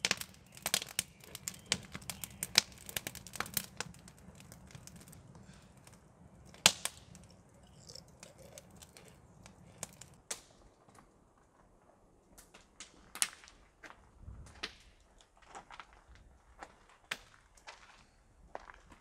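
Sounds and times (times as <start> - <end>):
fire popping sharply: 0.0 - 10.5
campfire crackling: 0.0 - 10.6.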